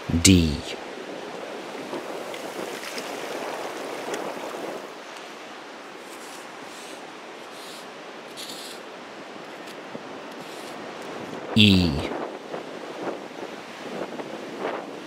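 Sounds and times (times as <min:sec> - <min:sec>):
surf washing on beach: 0:00.8 - 0:11.4
stick scraping wet sand: 0:06.0 - 0:08.9, 0:09.6 - 0:10.8.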